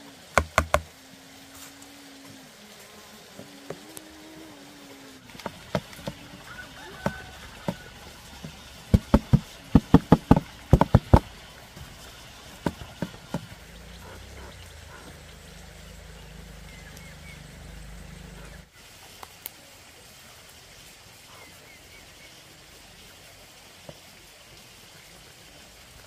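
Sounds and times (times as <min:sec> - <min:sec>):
sharp knocks: 0:00.4 - 0:00.9, 0:07.0 - 0:11.9, 0:12.6 - 0:13.6.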